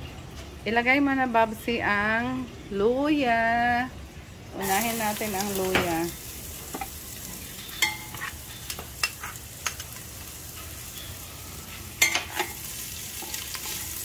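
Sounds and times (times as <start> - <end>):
ginger sizzling in hot oil: 4.6 - 14.0
metal turner clinking on pot: 6.7 - 11.2, 12.0 - 14.0.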